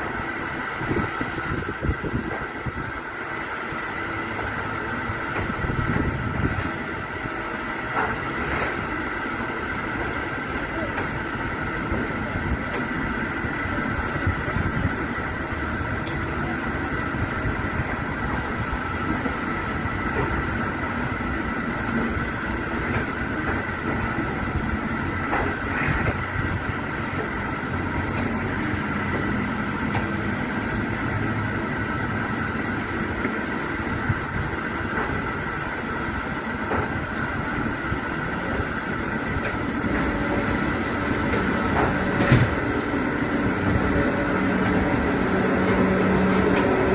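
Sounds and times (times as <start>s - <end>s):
mechanical hum: 0.0s - 46.9s
wind rumble on microphone: 0.8s - 2.9s, 5.4s - 6.9s.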